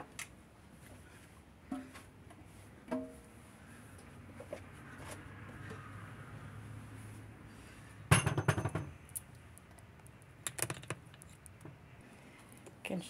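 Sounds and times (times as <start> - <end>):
kitchenware clinking and clattering: 8.1 - 8.9.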